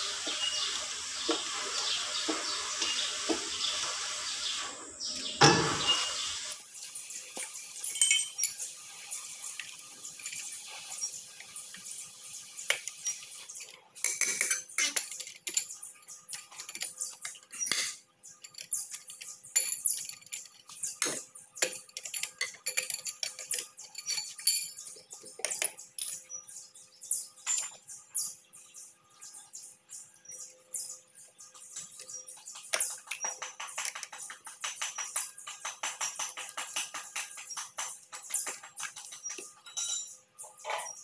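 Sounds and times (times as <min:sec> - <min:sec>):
lug wrench and wheel nuts clinking: 0:07.8 - 0:08.7, 0:14.0 - 0:26.2, 0:38.5 - 0:40.2.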